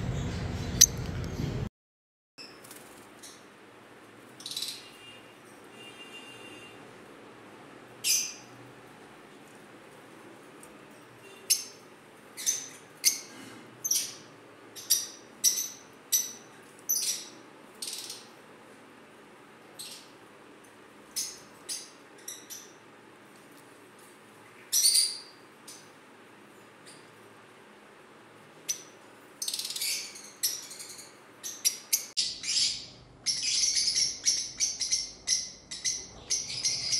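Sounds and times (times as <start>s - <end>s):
lovebirds chirping shrilly: 4.4s - 5.2s, 12.4s - 18.3s, 24.4s - 25.8s, 28.7s - 36.9s.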